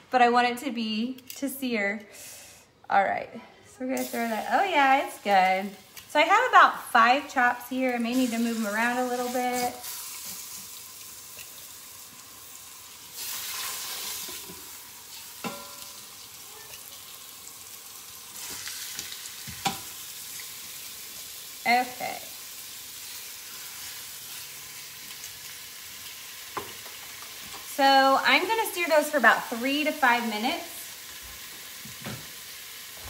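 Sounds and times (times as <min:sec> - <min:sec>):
pork chops sizzling: 0:04.0 - 0:33.0
metal tongs clinking on pot: 0:15.4 - 0:16.0.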